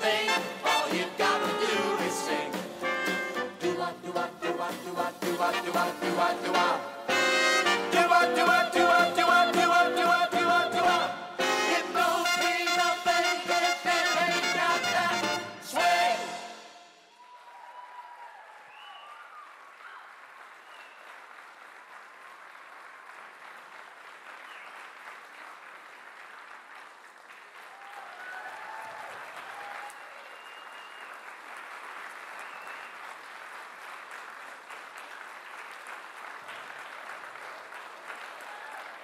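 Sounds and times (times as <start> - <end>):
people cheering: 17.1 - 21.2, 27.6 - 31.4, 32.3 - 33.3, 36.4 - 39.0
audience applauding: 17.2 - 39.0.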